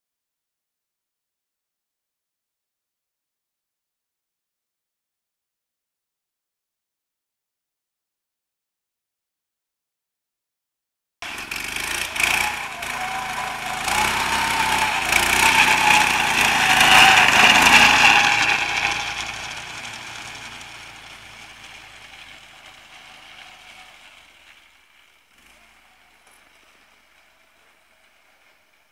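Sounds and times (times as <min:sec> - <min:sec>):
snowmobile engine passing: 0:11.2 - 0:28.9.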